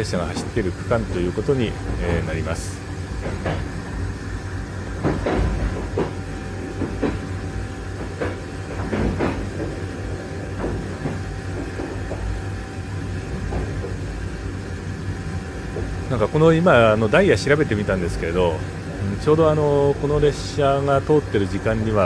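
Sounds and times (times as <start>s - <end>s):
train coach low rumble: 0.0s - 22.0s
knocks and rattles: 0.2s - 4.2s, 4.8s - 12.5s.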